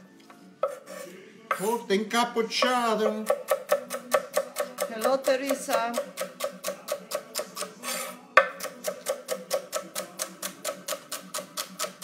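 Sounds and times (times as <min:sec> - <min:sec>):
knife chopping on wooden board: 0:02.6 - 0:07.7, 0:08.4 - 0:12.0.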